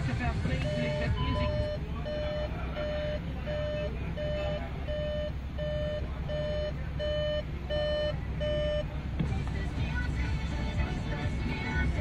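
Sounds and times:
low steady hum: 0.0 - 12.0
parking sensor beeping: 0.4 - 8.9.

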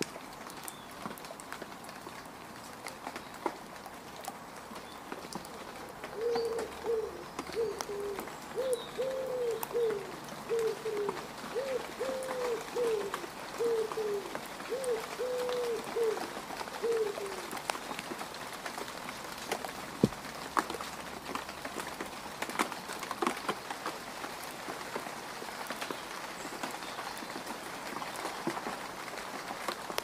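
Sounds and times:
water drips: 0.0 - 24.8
rain pattering on mud: 0.0 - 30.0
dove cooing: 6.1 - 17.6.

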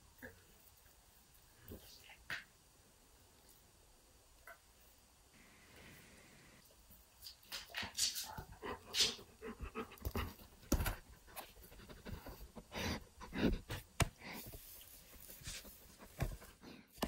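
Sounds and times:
dog panting and sniffing: 7.7 - 17.0.

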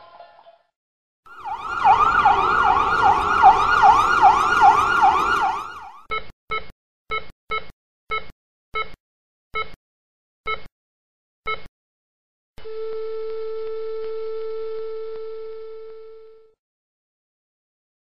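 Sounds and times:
siren yelping: 1.3 - 6.1.

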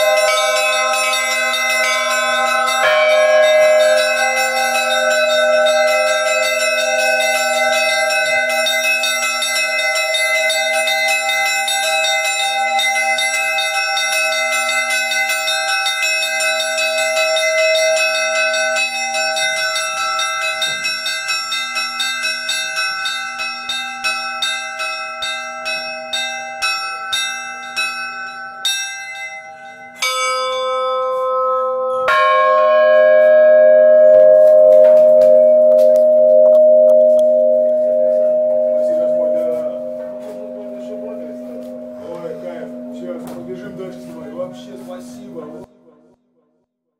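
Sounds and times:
steady low tone: 0.0 - 10.2, 31.2 - 45.8
bells ringing rapidly: 0.0 - 45.7
long-ringing bell strikes: 0.0 - 45.7.

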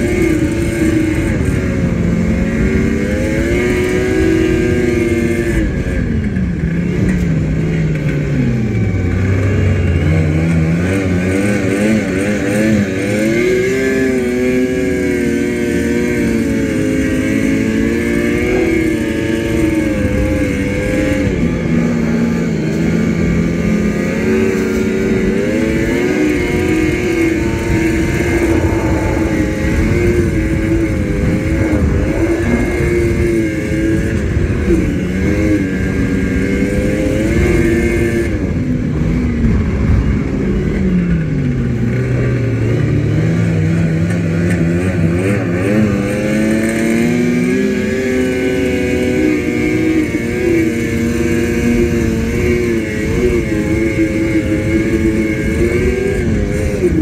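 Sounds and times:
snowmobile engine running: 0.0 - 57.0
rushing noise: 24.9 - 35.9.

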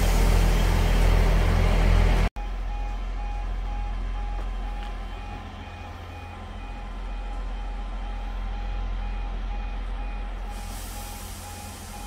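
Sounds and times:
diesel train engine hum: 0.0 - 12.0
electronic warning beeps: 2.4 - 12.0
air hiss: 10.5 - 12.0.

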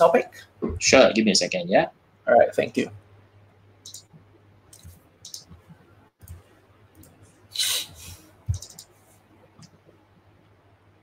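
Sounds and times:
faint low hum: 0.0 - 11.0
computer mouse clicks: 3.8 - 4.1, 4.7 - 7.2, 8.5 - 8.9
brief rustling hiss: 7.6 - 8.3.

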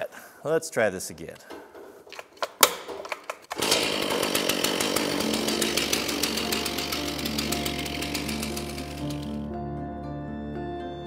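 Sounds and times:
chainsaw running: 3.5 - 9.6
background music: 4.8 - 11.0.

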